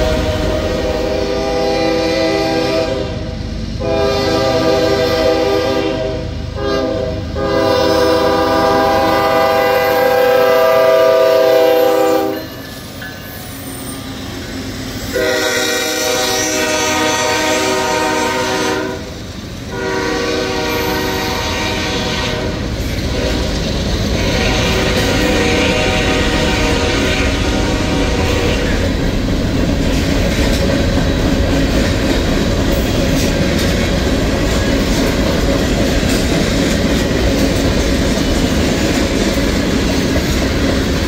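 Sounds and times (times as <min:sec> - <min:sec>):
locomotive air horn blasts: 0:00.0 - 0:12.5, 0:15.1 - 0:19.1, 0:19.7 - 0:23.5, 0:24.2 - 0:28.8
train wheels rumbling on rails: 0:00.0 - 0:41.0.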